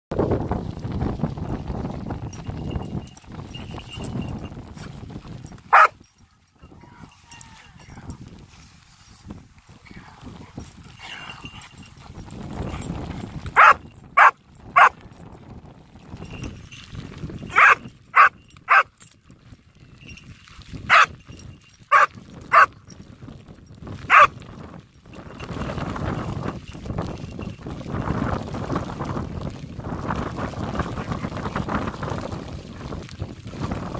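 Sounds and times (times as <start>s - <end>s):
dog barking: 5.7s - 6.0s, 13.6s - 15.0s, 17.5s - 18.9s, 20.9s - 21.1s, 21.9s - 22.7s, 24.1s - 24.3s.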